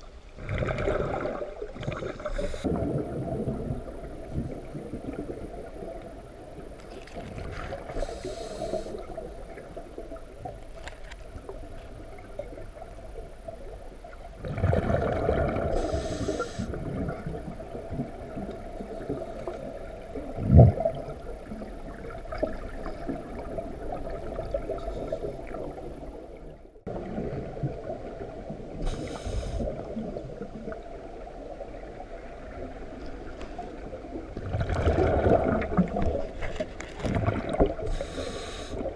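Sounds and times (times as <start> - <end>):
underwater water noise: 0.0 - 38.9
diver exhaling bubbles: 0.4 - 5.4, 14.4 - 17.4, 34.4 - 36.3.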